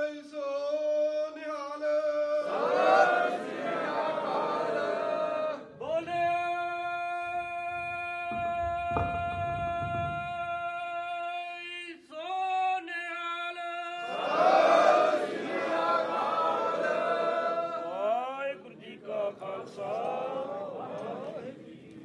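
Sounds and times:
congregation chanting in unison: 1.8 - 6.6, 13.7 - 22.0.

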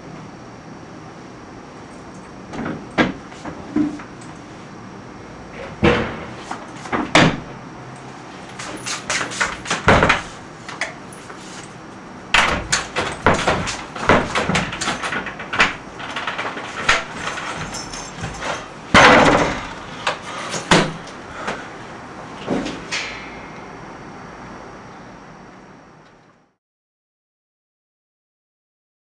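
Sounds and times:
things clattering and rustling: 8.5 - 11.8, 12.4 - 21.7.

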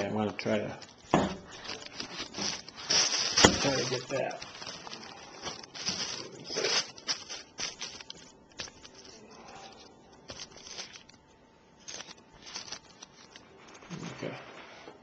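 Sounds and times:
plastic sheeting rustling: 1.5 - 11.2.

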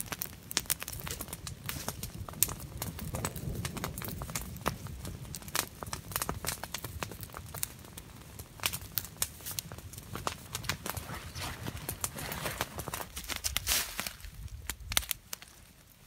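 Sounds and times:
twigs snapping: 10.2 - 15.6
needles rustling: 10.5 - 14.4.

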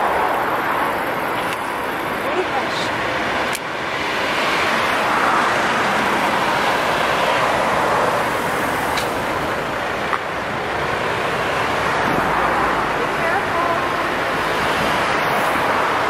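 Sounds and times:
cars driving past on road: 0.0 - 16.0.

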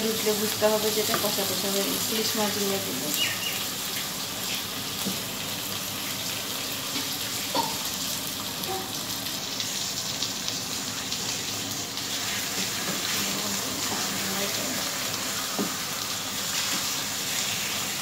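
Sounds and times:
paste sizzling in oil: 0.0 - 18.0
spoon knocking against pan: 7.5 - 7.9.

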